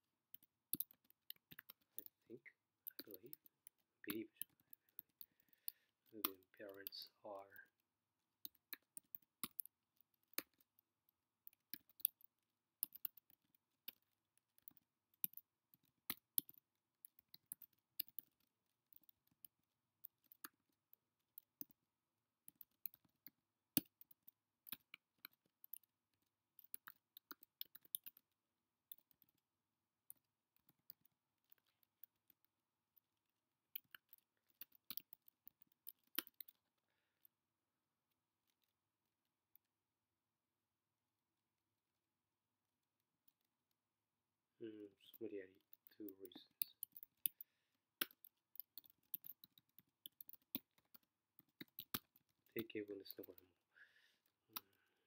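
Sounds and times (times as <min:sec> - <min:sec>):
computer keyboard typing: 0:00.3 - 0:02.2, 0:26.6 - 0:28.3, 0:33.8 - 0:36.6, 0:45.7 - 0:52.6.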